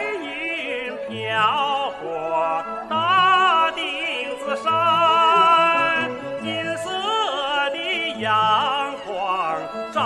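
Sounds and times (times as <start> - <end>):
instrumental accompaniment: 0.0 - 10.0
man singing with vibrato: 0.0 - 10.0.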